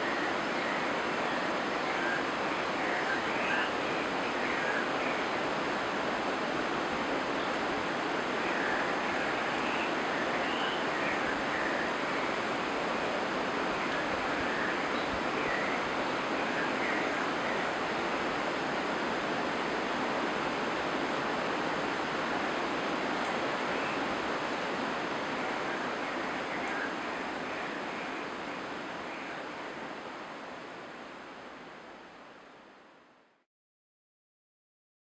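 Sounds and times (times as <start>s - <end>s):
running water rushing: 0.0s - 33.0s.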